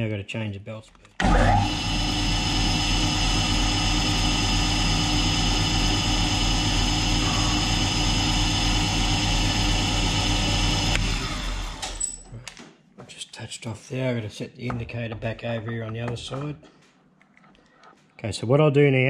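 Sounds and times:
mill drill humming: 1.2 - 12.0
drill winding down: 1.2 - 12.1.

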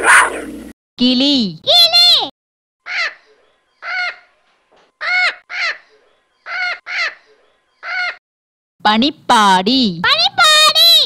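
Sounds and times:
parrot squawks: 2.8 - 4.4, 5.0 - 8.2.

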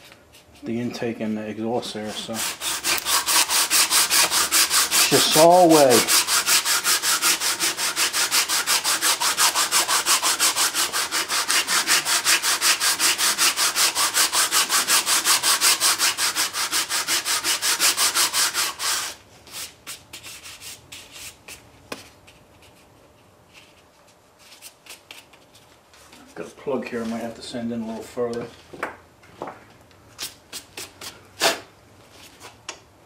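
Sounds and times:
sanding block scraping metal: 1.9 - 21.4.

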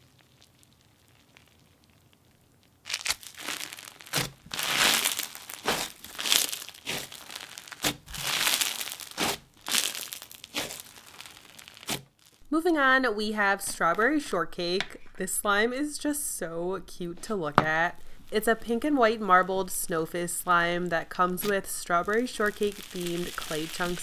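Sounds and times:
crunchy bead slime squeezed: 0.0 - 12.5, 20.4 - 24.0.

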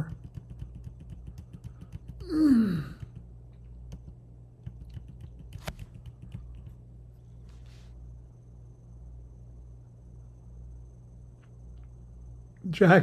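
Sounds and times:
computer keyboard keys tapping: 0.0 - 6.8
man sighing: 2.2 - 3.1.

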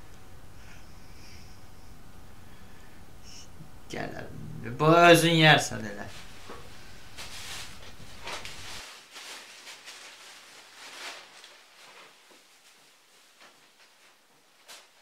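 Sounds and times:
low hum: 0.0 - 5.0.

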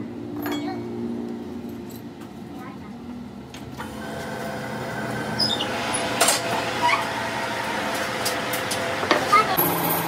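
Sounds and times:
lathe hum and gear whine: 3.8 - 10.0.

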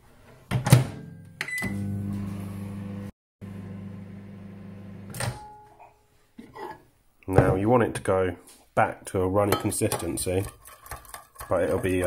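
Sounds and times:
microwave short beep: 1.4 - 2.0
microwave oven hum: 1.5 - 5.6.

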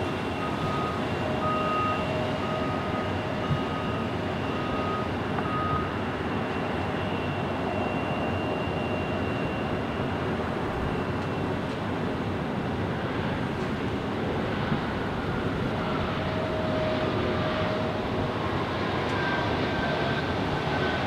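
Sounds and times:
faint high whine: 0.0 - 11.7
jet aircraft noise: 0.0 - 21.0
vehicle reversing beeper: 0.1 - 11.6.

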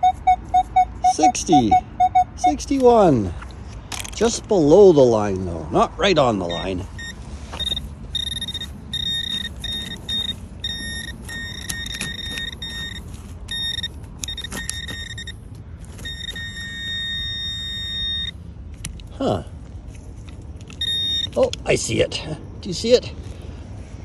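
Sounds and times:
pinpointer buzzing alert tone: 0.0 - 2.6, 7.0 - 15.3, 16.1 - 18.4, 20.8 - 21.4.

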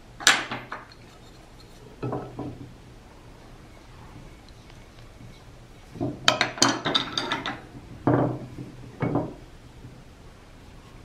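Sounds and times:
hard objects clinking and knocking: 6.0 - 9.4.

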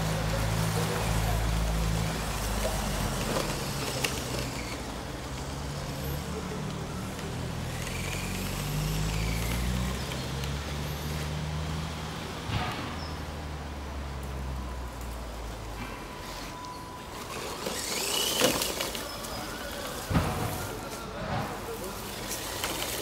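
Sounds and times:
toy truck motor whining: 0.7 - 11.3, 16.2 - 23.0.

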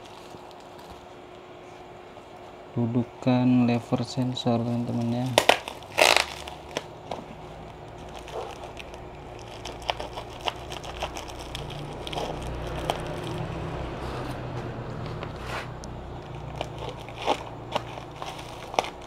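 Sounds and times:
bubble wrap crinkling: 0.0 - 1.2, 4.5 - 14.4, 15.0 - 19.0
low hum: 5.3 - 19.0.

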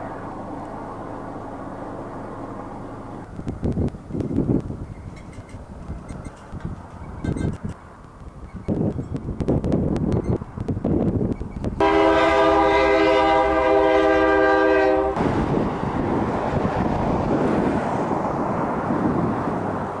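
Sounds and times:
train rumbling with clicking: 2.6 - 20.0
train horn blast: 11.8 - 15.3.

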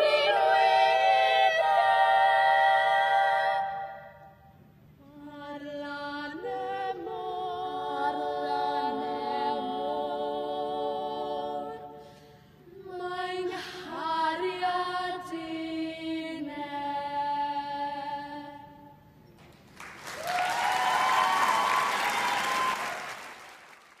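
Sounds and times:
girls choir singing unaccompanied: 0.0 - 4.4, 5.0 - 12.1, 12.7 - 19.0
audience applauding: 19.7 - 24.0.

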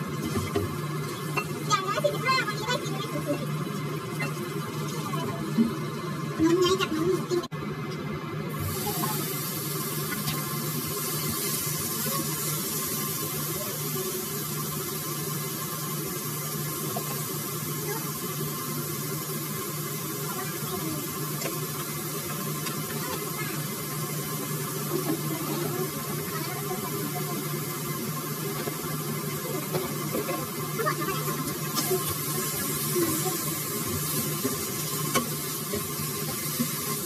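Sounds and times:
steak sizzling in frying pan: 8.5 - 37.0.

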